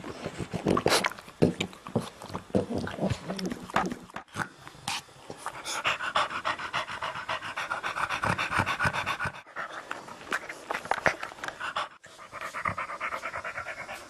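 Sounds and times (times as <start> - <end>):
dog panting: 5.4 - 14.0.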